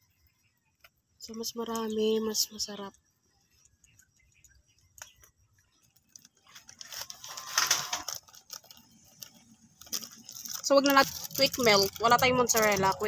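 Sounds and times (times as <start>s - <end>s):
dried herbs rattling in shaker: 5.8s - 13.0s.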